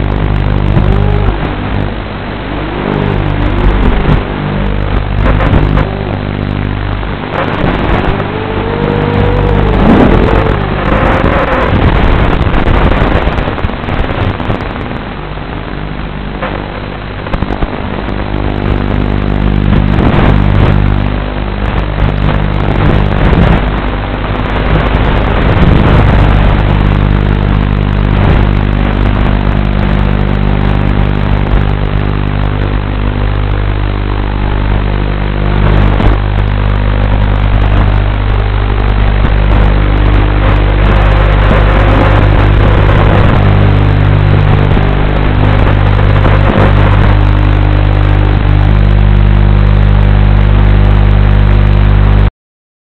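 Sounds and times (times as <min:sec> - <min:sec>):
quadcopter motors whining: 0:00.0 - 0:12.4
steady rush of noise: 0:00.0 - 0:52.3.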